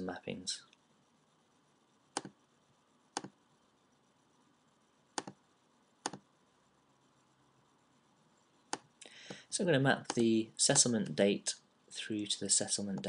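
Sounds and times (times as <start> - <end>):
computer mouse button clicks: 5.2 - 5.4, 6.0 - 6.2.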